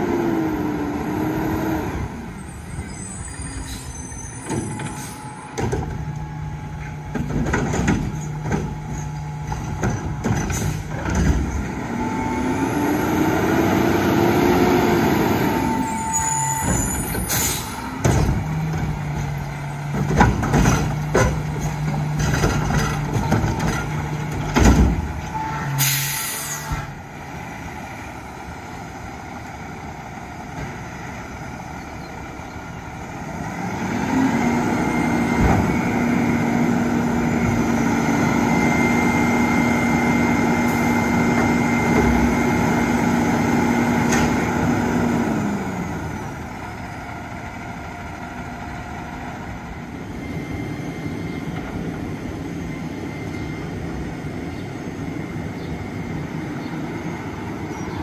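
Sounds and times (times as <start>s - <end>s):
truck engine whining: 0.0s - 58.0s
air brakes hiss: 17.2s - 17.8s, 25.6s - 26.9s.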